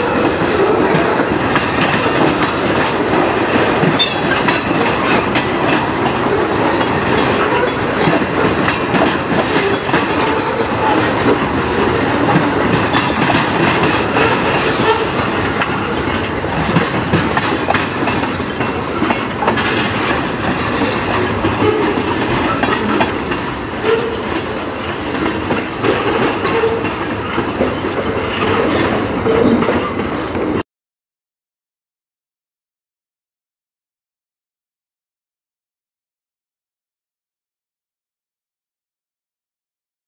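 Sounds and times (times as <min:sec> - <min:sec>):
train rumble: 0:00.0 - 0:30.6
train wheels clacking over rail joints: 0:00.0 - 0:30.6.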